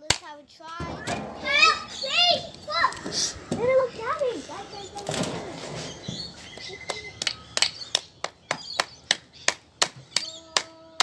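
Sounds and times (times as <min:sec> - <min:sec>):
hammer striking metal casing: 0:00.8 - 0:02.3.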